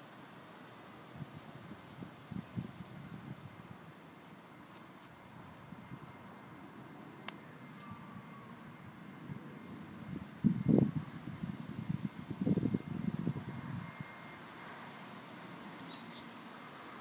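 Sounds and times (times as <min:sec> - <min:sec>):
handling rustle: 0:04.5 - 0:06.2
birds chirping: 0:05.4 - 0:09.5, 0:15.4 - 0:16.4.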